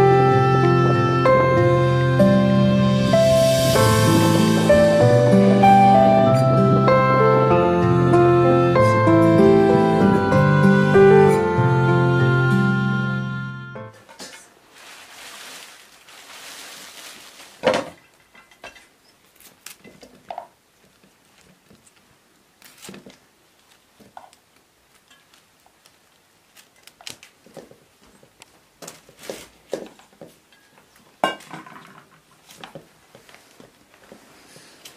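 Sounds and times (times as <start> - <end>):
background music: 0.0 - 14.0
soft hiss: 14.0 - 31.2.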